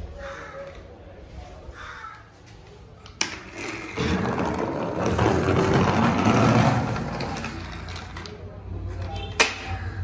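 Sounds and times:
toy truck wheels rolling on floor: 0:03.1 - 0:08.4.

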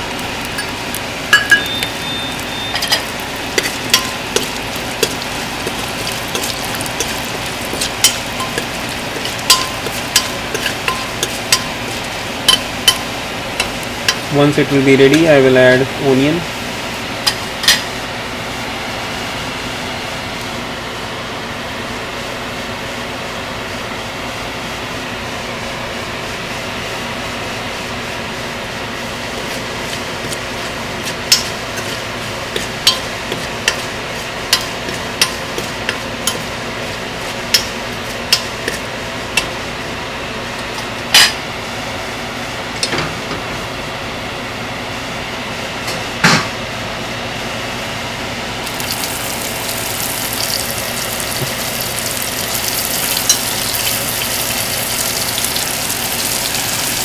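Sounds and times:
spices popping in hot oil: 0:00.0 - 0:14.3, 0:29.4 - 0:36.4, 0:48.6 - 0:57.0
steady background hum: 0:00.0 - 0:57.0.

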